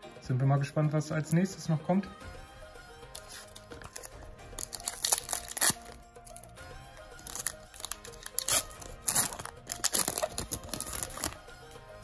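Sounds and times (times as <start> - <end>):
background music: 0.0 - 12.0
foil wrapper tearing and crinkling: 3.2 - 6.4, 7.2 - 11.4.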